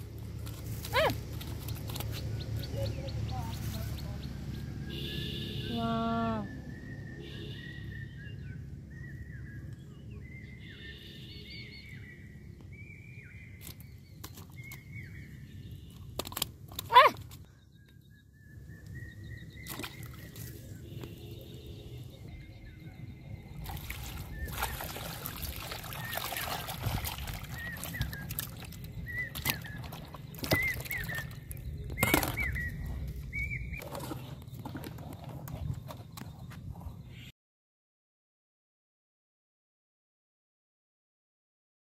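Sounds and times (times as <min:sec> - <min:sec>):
bird chirping: 0:06.2 - 0:15.9, 0:17.4 - 0:25.2, 0:27.3 - 0:37.3
sharp clicks handling fish: 0:16.1 - 0:17.4.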